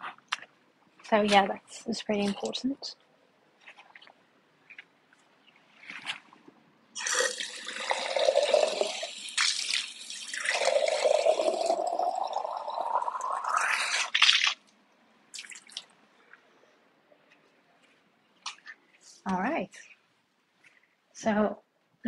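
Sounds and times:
water running into container: 0:07.0 - 0:14.6.

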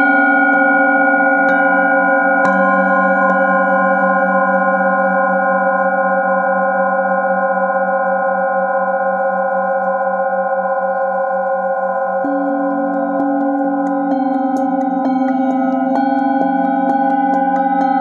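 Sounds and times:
singing bowls ringing: 0:00.0 - 0:18.0
mallet ticking against bowl rim: 0:12.2 - 0:18.0.

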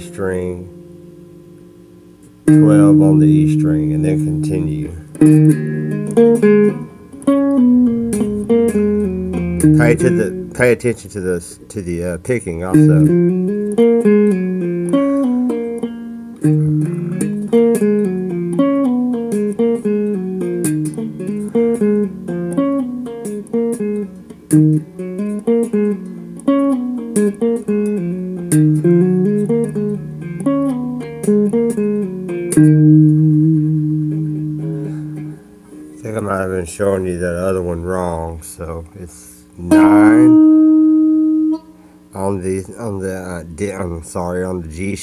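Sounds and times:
electric guitar picked notes: 0:00.0 - 0:38.4, 0:39.5 - 0:45.0.

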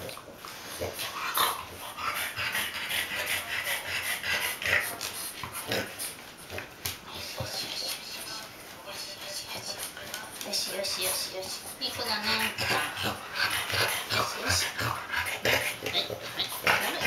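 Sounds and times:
dog wheezy snorting breaths: 0:00.0 - 0:17.0.

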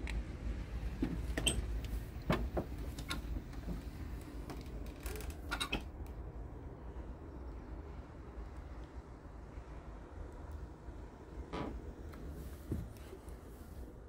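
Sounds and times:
knocks and clicks of handling: 0:01.0 - 0:05.9.

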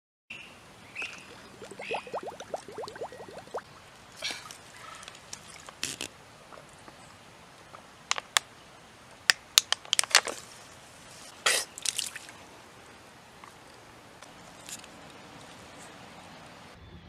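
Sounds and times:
water spat out of mouth: 0:01.2 - 0:04.5.

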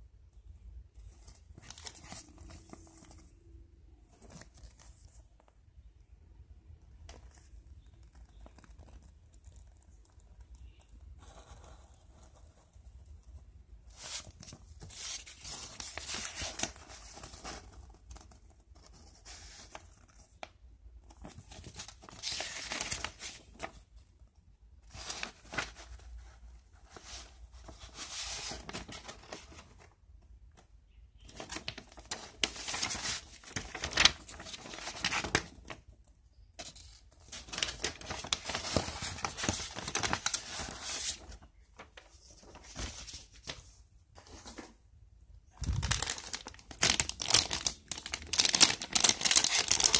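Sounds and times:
paper pages rustling: 0:01.0 - 0:03.4, 0:13.9 - 0:20.4, 0:21.1 - 0:23.8, 0:24.8 - 0:29.9, 0:31.2 - 0:35.9, 0:36.6 - 0:44.8, 0:45.5 - 0:49.9.

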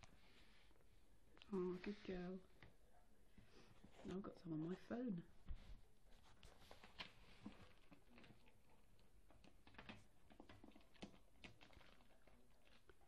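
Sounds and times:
soft rustles on blanket: 0:03.2 - 0:07.8.

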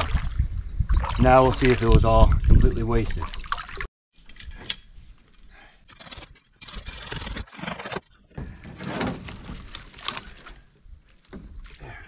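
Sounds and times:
canoe hull scraping over branches: 0:06.6 - 0:10.6.

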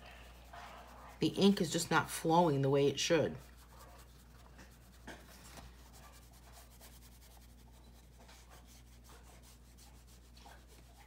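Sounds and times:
marker scratching on paper: 0:03.1 - 0:11.0.

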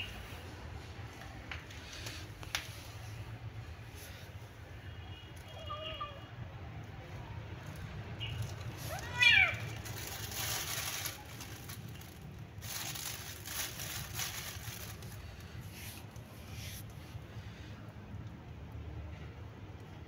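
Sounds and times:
plastic bag crinkling: 0:07.7 - 0:16.9
cat meowing: 0:08.8 - 0:09.8.

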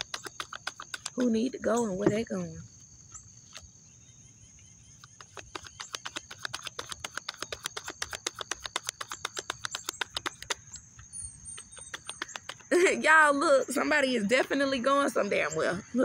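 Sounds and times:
cards being shuffled by hand: 0:00.0 - 0:01.4, 0:05.0 - 0:10.7, 0:11.5 - 0:12.8.

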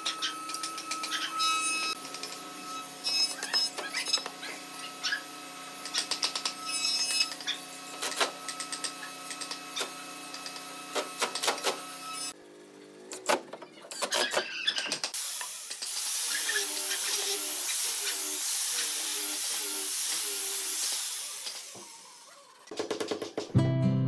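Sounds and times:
orbital sander on wood: 0:00.0 - 0:12.4, 0:15.2 - 0:22.6
sharp clicks and knocks: 0:02.0 - 0:02.4.

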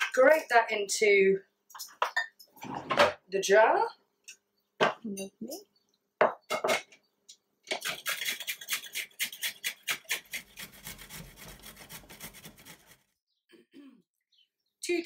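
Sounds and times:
ginger rasping on a grater: 0:07.8 - 0:13.1.

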